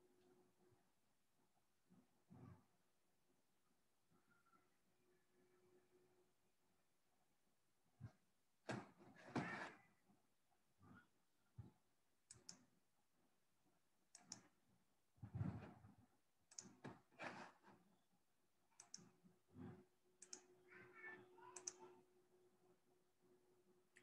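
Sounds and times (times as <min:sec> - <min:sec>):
computer mouse clicks: 0:12.2 - 0:12.8, 0:14.1 - 0:14.6, 0:16.5 - 0:17.6, 0:18.7 - 0:20.5, 0:21.6 - 0:21.9.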